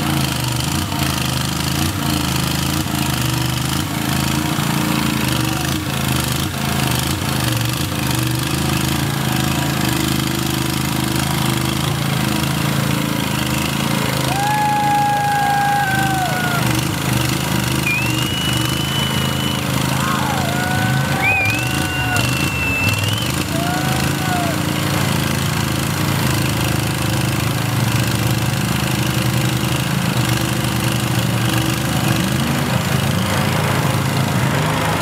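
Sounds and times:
lawn mower engine running: 0.0 - 35.0
tires churning through water: 0.0 - 35.0
long whistle dropping in pitch: 17.8 - 24.4.

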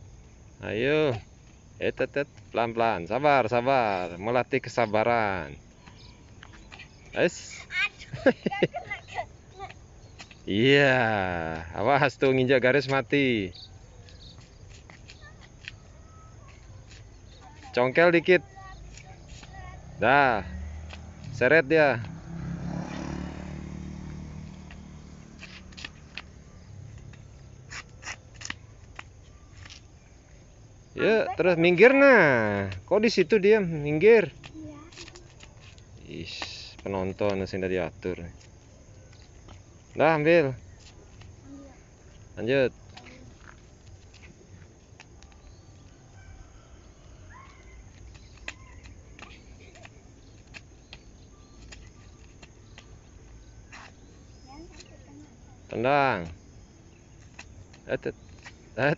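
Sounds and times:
flip-flops slapping on asphalt: 8.8 - 10.6, 14.0 - 17.8, 18.4 - 20.0, 20.6 - 21.4, 22.0 - 30.4, 34.3 - 37.6, 40.6 - 46.0, 47.2 - 55.3, 57.1 - 58.8
passing vehicle engine hum: 19.8 - 27.7
flip-flops tapping on asphalt: 24.1 - 29.9, 47.3 - 55.0.

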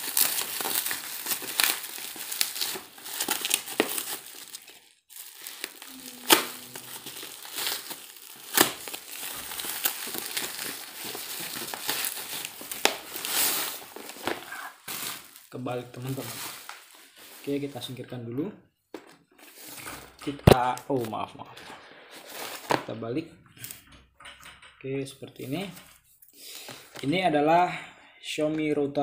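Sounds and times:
plastic and bubble wrap crinkling: 0.0 - 18.0, 19.0 - 23.0.

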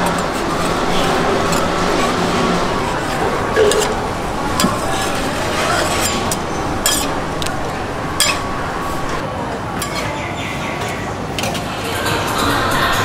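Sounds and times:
metal spatula scraping griddle: 0.0 - 9.2
steady background noise: 0.0 - 13.0.

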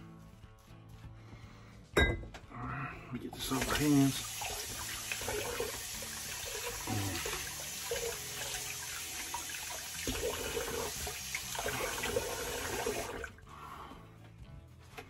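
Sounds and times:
water running from sink tap: 3.4 - 13.4.

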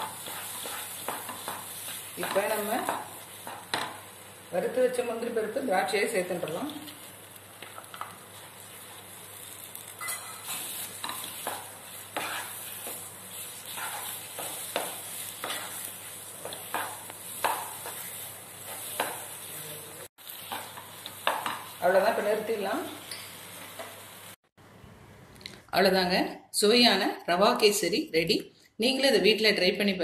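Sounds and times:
wooden spatula scraping a pan: 0.0 - 3.6, 10.4 - 19.5
faint sizzle of fat in pan: 0.0 - 24.4.

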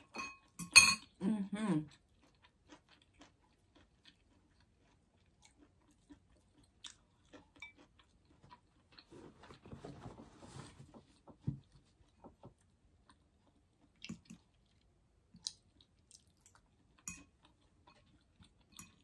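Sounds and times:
fork clinking against glass bowl: 0.0 - 1.1
faint chewing: 1.8 - 19.0.

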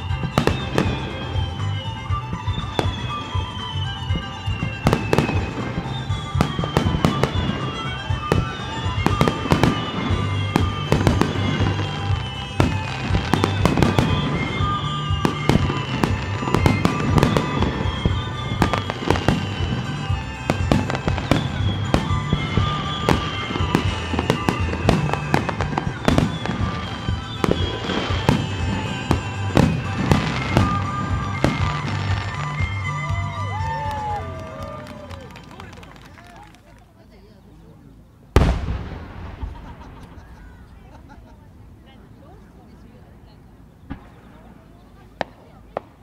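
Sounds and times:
fireworks launching and bursting: 0.0 - 35.6, 38.4 - 41.1
music playing: 0.0 - 36.1.

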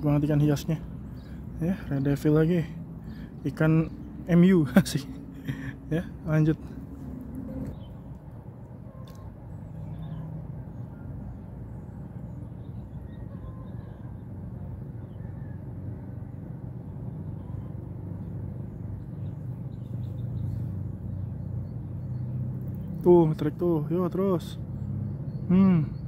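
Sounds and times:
low outdoor rumble: 0.0 - 26.0
small click: 9.0 - 9.3.

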